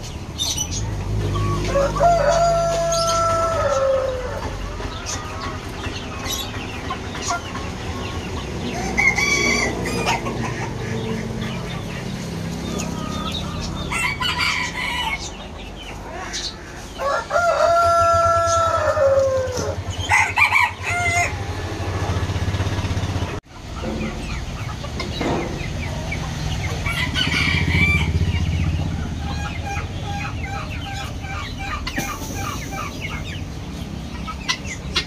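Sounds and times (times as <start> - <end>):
chickens squawking and clucking: 0.0 - 35.0
rooster crowing: 1.6 - 4.6, 8.7 - 10.2, 13.8 - 15.3, 17.0 - 21.5, 26.8 - 28.2.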